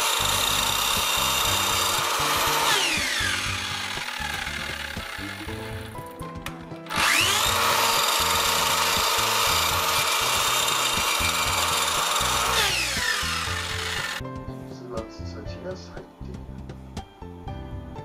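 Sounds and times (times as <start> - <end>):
miter saw cutting wood: 0.0 - 6.0, 6.9 - 14.2.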